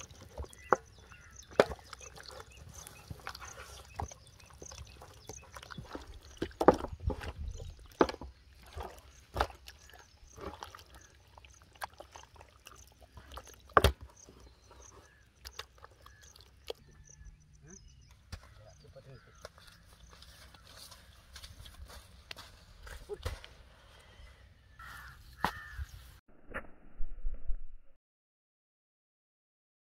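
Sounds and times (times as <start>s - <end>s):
hands squelching wet batter: 0.0s - 17.2s.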